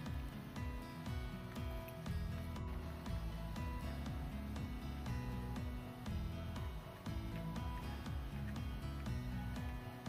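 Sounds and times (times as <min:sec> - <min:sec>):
music with steady beat: 0:00.0 - 0:10.0.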